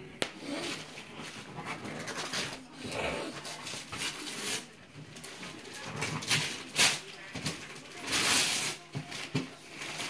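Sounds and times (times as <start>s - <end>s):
wrapping paper crinkling: 3.4s - 10.0s.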